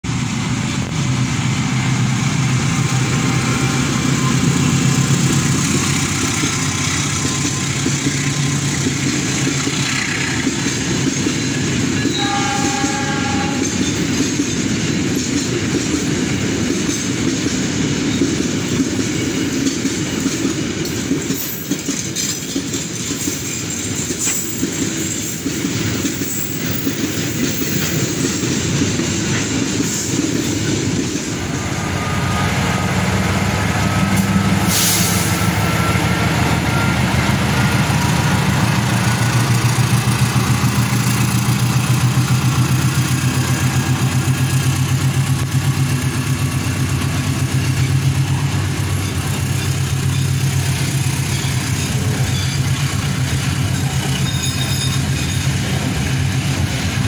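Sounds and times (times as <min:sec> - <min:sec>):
diesel locomotive engine: 0:00.0 - 0:57.0
train wheels clattering on rails: 0:00.1 - 0:57.0
train horn blast: 0:12.0 - 0:13.8.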